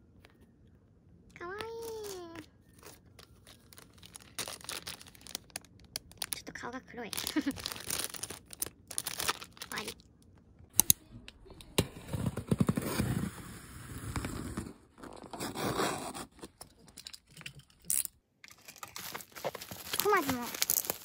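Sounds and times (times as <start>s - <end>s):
cardboard and bubble wrap crinkling: 1.4s - 10.0s, 11.9s - 16.6s, 18.5s - 21.0s.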